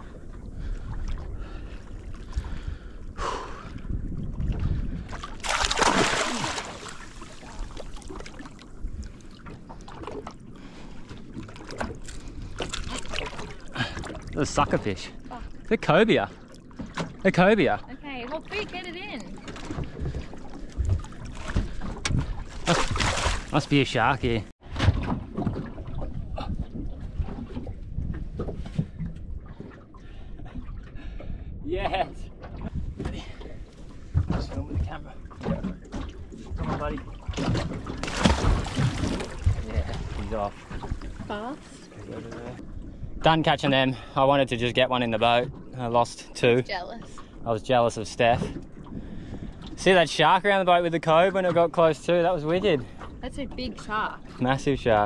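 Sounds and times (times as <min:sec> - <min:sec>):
wind buffeting microphone: 0:00.0 - 0:07.8, 0:18.2 - 0:43.9
water around a boat: 0:00.0 - 0:55.0.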